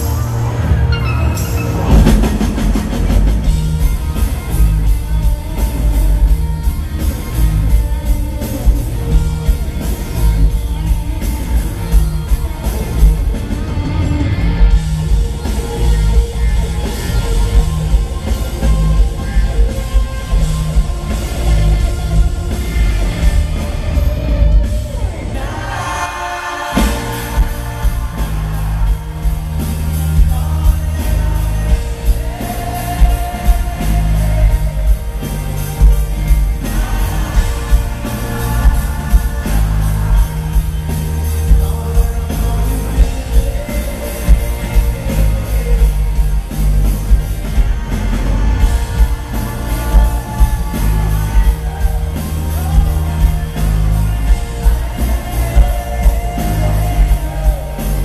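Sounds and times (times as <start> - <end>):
pop-rock band playing: 0.0 - 58.0
man singing: 14.6 - 58.0.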